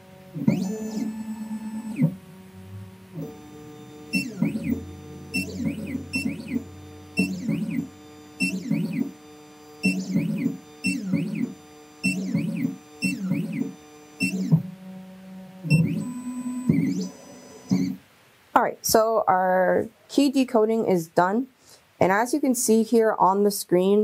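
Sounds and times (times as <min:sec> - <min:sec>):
motors whirring in bursts: 0:00.4 - 0:02.2, 0:03.2 - 0:18.0
guitar music: 0:02.4 - 0:07.7.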